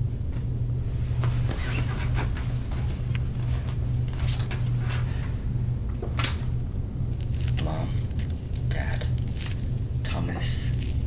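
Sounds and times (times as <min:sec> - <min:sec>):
steady low hum: 0:00.0 - 0:11.0
rustling on a bed: 0:00.3 - 0:05.1.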